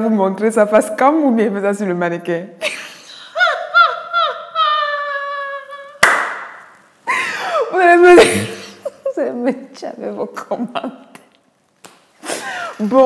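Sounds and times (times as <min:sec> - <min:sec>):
woman laughing: 0:02.6 - 0:06.0, 0:07.1 - 0:09.4.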